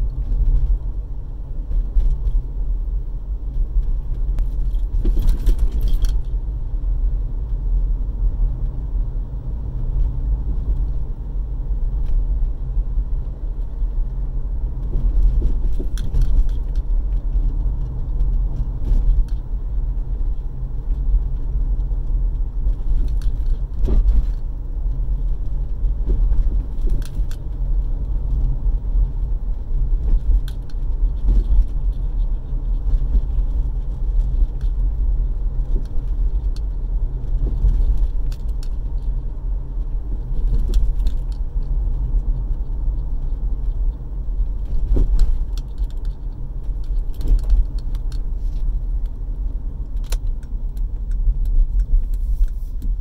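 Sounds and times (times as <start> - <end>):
road rumble inside car: 0.0 - 53.0
clunks and rattles: 3.6 - 6.4, 14.8 - 19.5, 22.3 - 39.2, 39.8 - 53.0.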